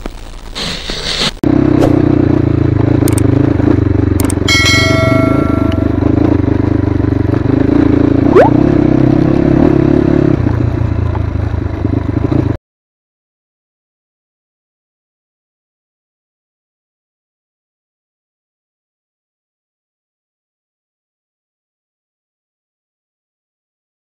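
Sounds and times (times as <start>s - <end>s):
dirt bike engine running: 1.4s - 12.6s.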